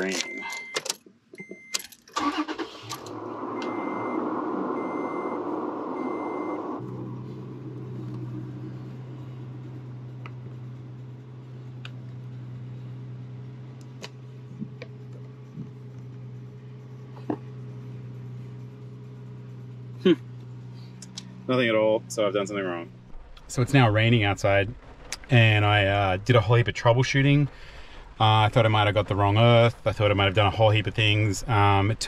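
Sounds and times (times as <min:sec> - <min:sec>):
dash warning chime beeping: 0:00.0 - 0:01.8
engine cranking on starter: 0:01.9 - 0:06.2
car engine idling: 0:02.1 - 0:32.0.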